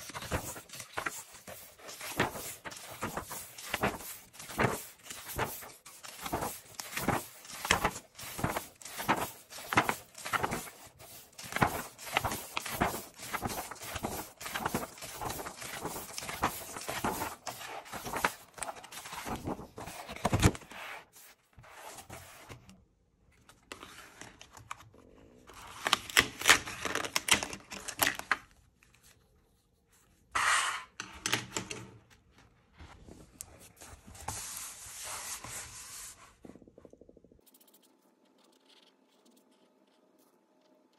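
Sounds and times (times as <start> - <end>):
paper pages flipping: 0.0 - 22.7, 23.3 - 30.1
paper rustling: 0.0 - 22.7.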